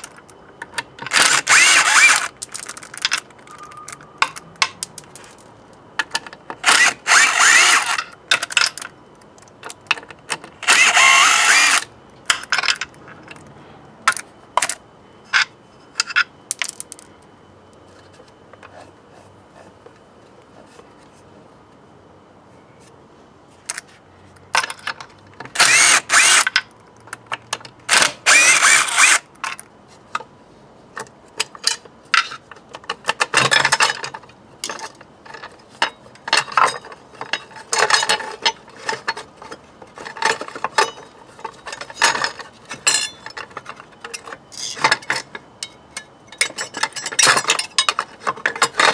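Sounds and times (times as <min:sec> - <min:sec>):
metal parts clinking: 0:00.0 - 0:17.1, 0:31.4 - 0:48.9
power tool undoing bolts: 0:01.0 - 0:02.7, 0:06.6 - 0:08.5, 0:10.6 - 0:11.9, 0:25.5 - 0:26.6, 0:27.9 - 0:29.3.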